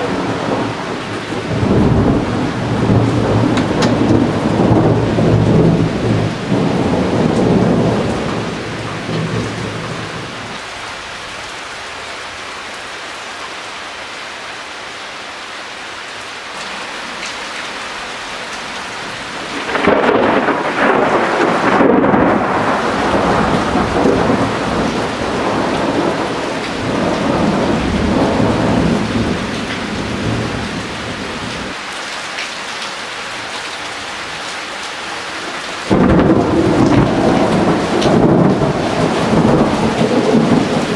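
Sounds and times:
thunder rolling: 0.0s - 10.5s, 19.1s - 31.8s, 35.9s - 40.9s
steady rain: 0.0s - 40.9s.

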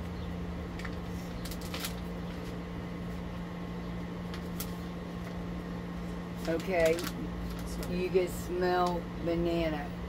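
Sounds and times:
steady low hum: 0.0s - 10.0s
plastic wrapper crinkling: 0.8s - 2.6s, 6.4s - 8.0s.

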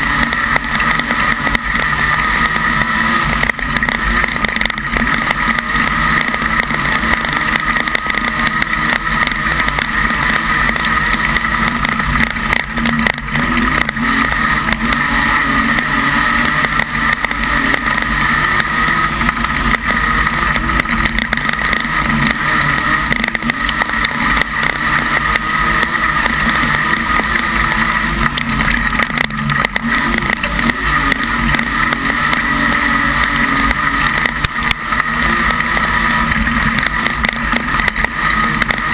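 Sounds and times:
race car engine drone: 0.0s - 38.9s
small rattling clicks: 0.2s - 15.0s, 15.7s - 22.4s, 23.0s - 32.5s.

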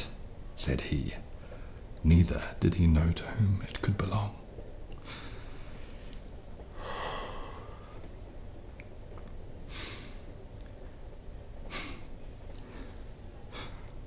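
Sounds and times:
soft close breaths: 1.3s - 2.0s, 5.0s - 8.4s, 11.6s - 14.0s.

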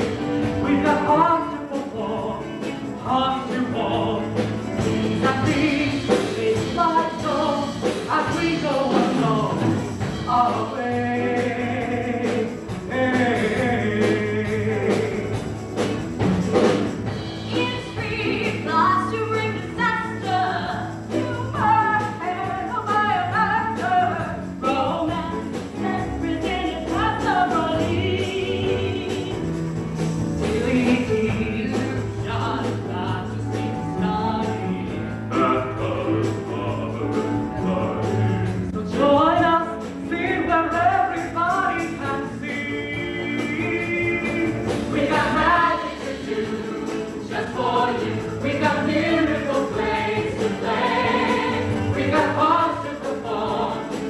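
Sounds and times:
band playing: 0.0s - 54.0s
voices singing: 17.5s - 29.5s, 30.4s - 54.0s.

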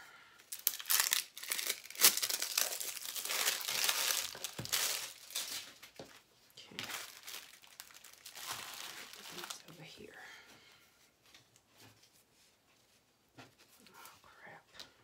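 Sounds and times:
plastic packaging crinkling and tearing: 0.4s - 9.8s.

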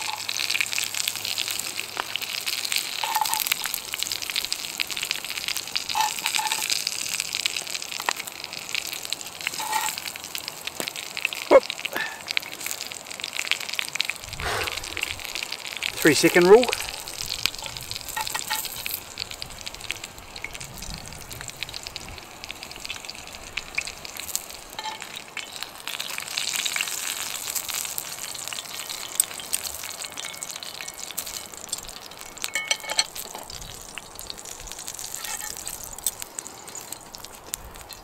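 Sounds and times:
sausage fat sizzling in a pan: 0.0s - 38.0s
metal utensil clinks: 18.2s - 18.8s, 29.2s - 33.3s.

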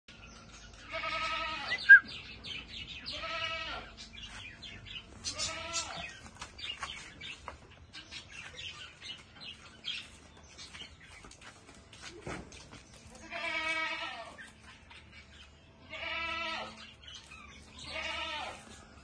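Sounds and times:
goat bleating: 0.8s - 2.0s, 3.0s - 4.0s, 5.2s - 6.2s, 13.1s - 14.6s, 15.8s - 17.0s, 17.7s - 19.0s.

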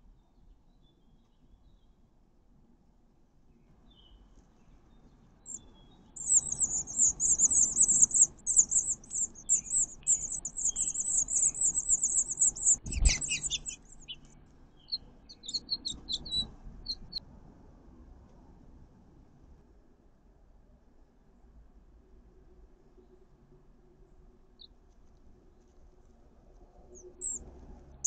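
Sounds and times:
nestlings begging chatter: 6.2s - 14.2s, 27.2s - 27.4s
short chirps: 6.2s - 14.2s.

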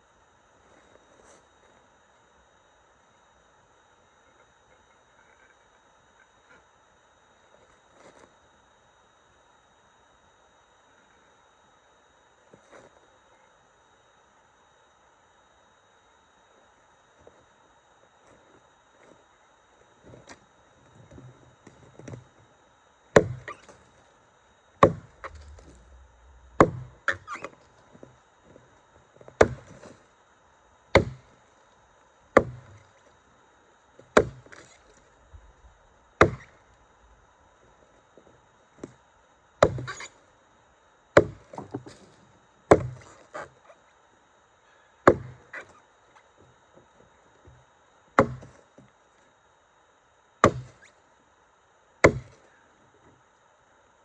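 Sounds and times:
axe chopping log: 23.2s - 23.8s, 24.8s - 27.6s, 29.4s - 29.8s, 30.9s - 31.2s, 32.4s - 32.8s, 34.1s - 34.7s, 36.2s - 36.5s, 39.6s - 40.1s, 41.2s - 41.9s, 42.7s - 43.1s, 45.1s - 45.7s, 48.2s - 48.5s, 50.4s - 50.8s, 52.0s - 52.4s.

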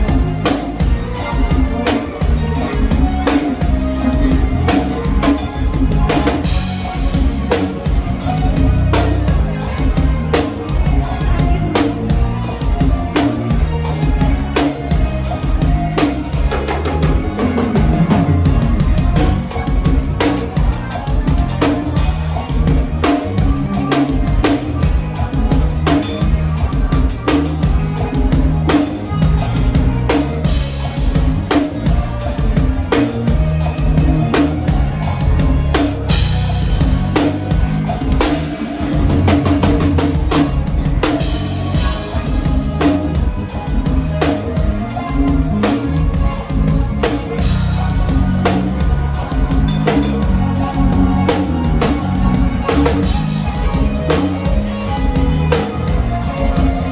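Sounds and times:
band playing live: 0.0s - 56.9s
sustained keyboard notes: 0.0s - 56.9s.

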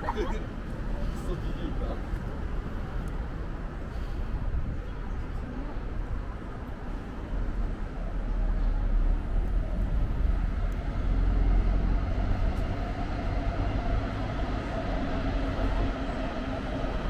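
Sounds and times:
train rumbling past: 6.9s - 17.0s.

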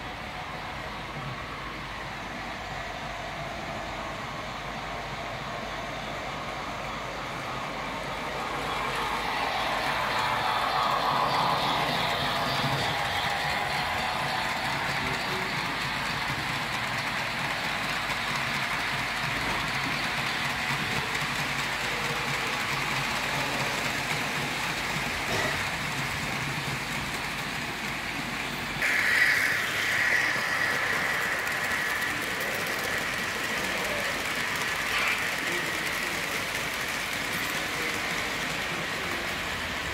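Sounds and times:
model train wheels rattling: 8.4s - 39.9s
high steady whine: 28.8s - 32.6s.

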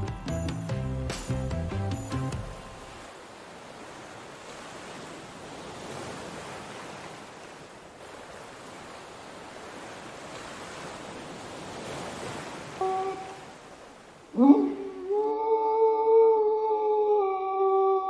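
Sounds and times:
churning water from boat wake: 2.4s - 14.4s.

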